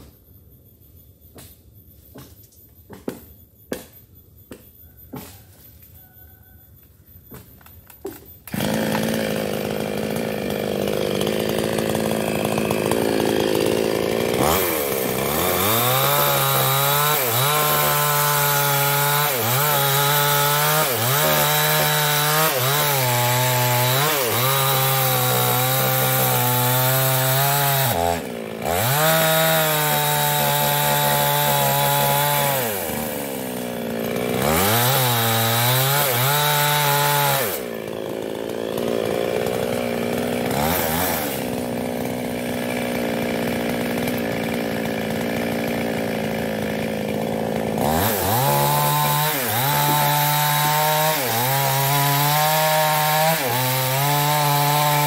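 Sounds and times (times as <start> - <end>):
chainsaw cutting wood: 1.3 - 5.6, 7.3 - 55.0.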